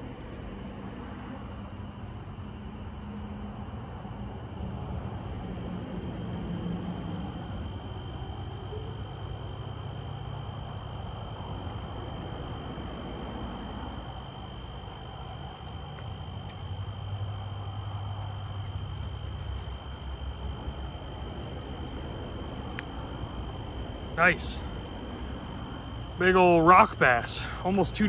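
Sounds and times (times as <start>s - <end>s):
crickets trilling: 0.0s - 28.0s
low steady rumble: 0.0s - 28.0s.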